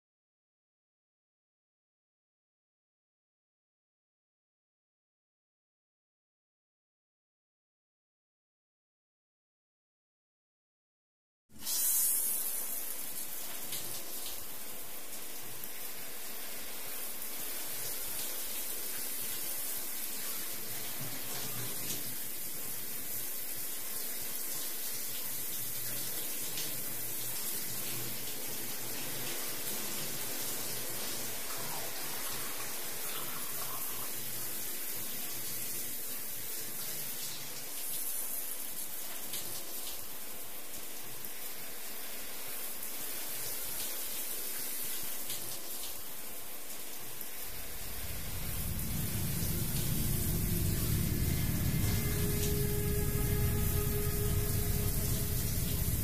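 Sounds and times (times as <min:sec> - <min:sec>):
shower water hissing: 0:11.5 - 0:56.0.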